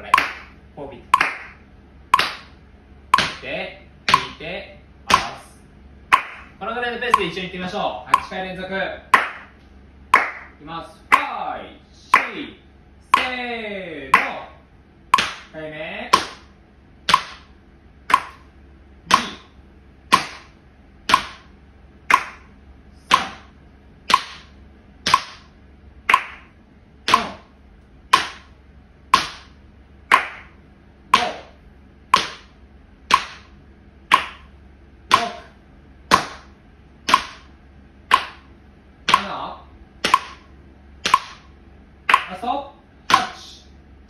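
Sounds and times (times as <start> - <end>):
metronome clicking: 7.1 - 7.4, 8.1 - 8.4, 13.1 - 13.4, 18.1 - 18.4, 22.1 - 22.5, 39.1 - 39.4, 40.1 - 40.4.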